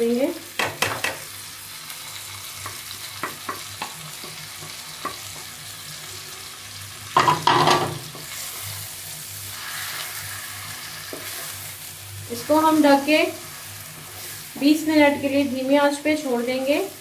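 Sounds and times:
food sizzling in a pan: 0.0s - 17.0s
wooden spoon tapping pan: 2.6s - 5.5s.

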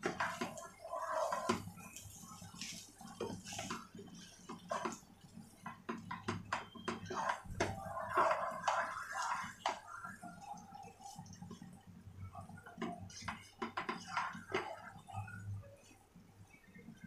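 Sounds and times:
rice rustling: 0.0s - 6.0s, 7.0s - 11.6s.

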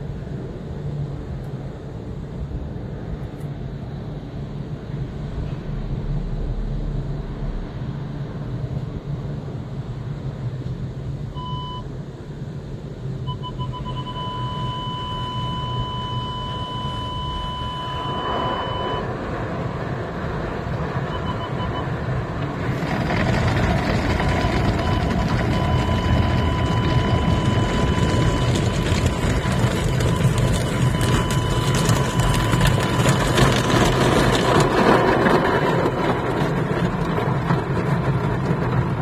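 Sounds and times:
rumble of machinery and water: 0.0s - 39.0s
parking sensor beeps: 11.3s - 11.9s, 13.2s - 19.1s, 21.1s - 22.0s, 24.2s - 34.1s.

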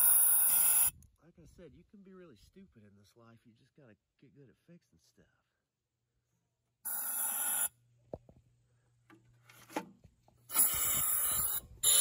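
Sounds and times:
compressed air hissing: 0.0s - 0.9s, 6.9s - 7.7s, 10.5s - 12.0s.

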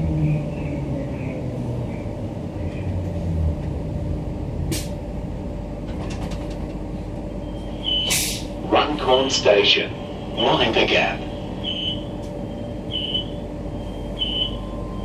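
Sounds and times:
train running gear rumble: 0.0s - 15.0s.

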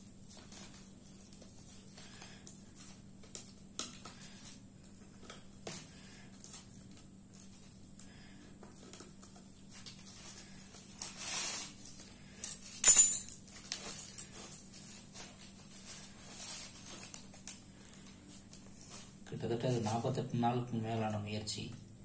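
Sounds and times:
handling scrapes and rustles: 8.6s - 12.8s, 13.4s - 20.2s.

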